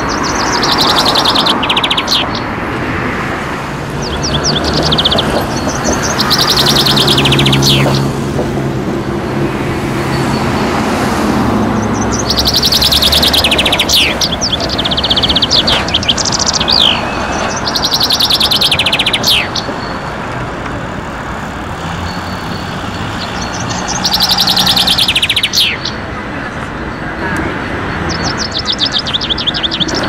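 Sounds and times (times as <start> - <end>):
songbird trilling song: 0.0 - 2.5, 4.0 - 8.2, 11.8 - 20.1, 21.8 - 26.0
street traffic rumble: 0.0 - 30.0
tram passing: 0.0 - 30.0.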